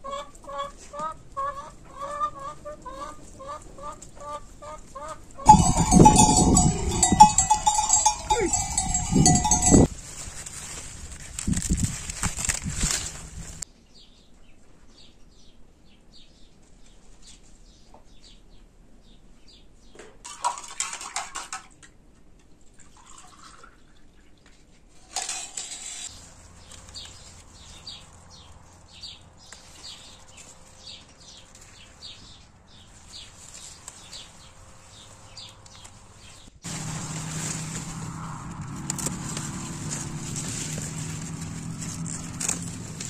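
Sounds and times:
loud rustling: 5.5s - 13.6s, 32.8s - 43.0s
small birds chirping: 26.2s - 36.6s.

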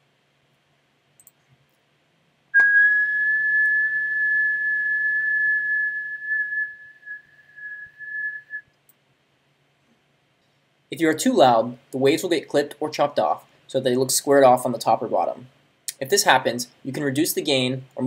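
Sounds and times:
person whistling a high note: 2.6s - 8.6s.

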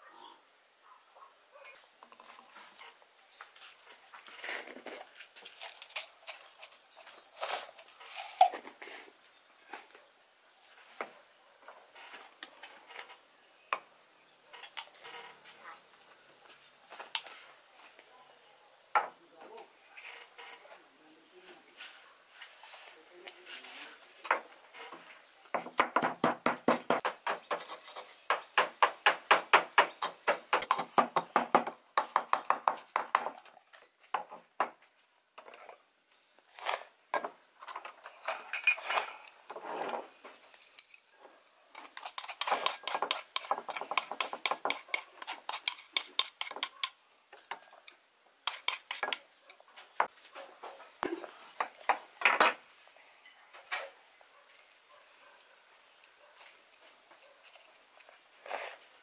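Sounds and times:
pestle pounding in wooden mortar: 25.6s - 27.7s, 28.3s - 33.4s, 41.9s - 46.9s.

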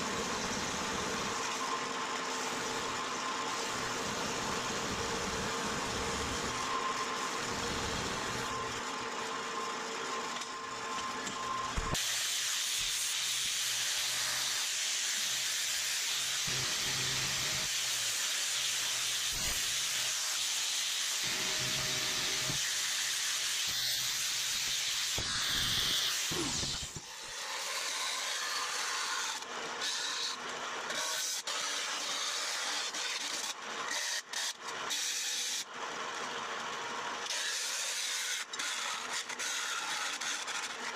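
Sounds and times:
band saw cutting metal: 0.0s - 35.7s, 37.2s - 40.9s
angle grinder grinding metal: 11.3s - 35.0s.

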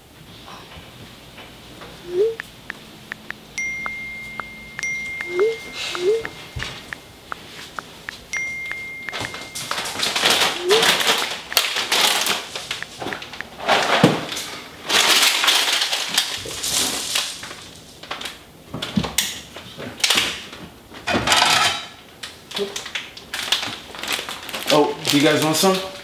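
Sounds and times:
plastic packets crinkling: 14.4s - 18.4s, 22.8s - 25.8s.

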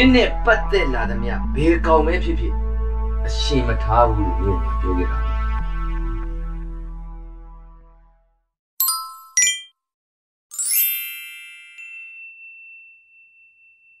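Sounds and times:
drama background music: 0.0s - 7.5s
chime-like dings: 8.8s - 9.8s, 10.5s - 14.0s.

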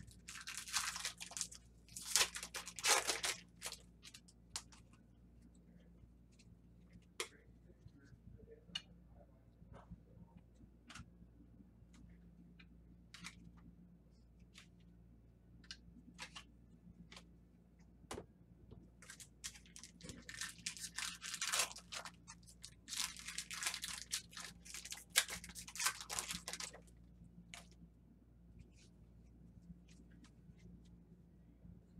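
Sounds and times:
foil wrapper tearing: 0.0s - 4.1s, 19.0s - 26.8s.

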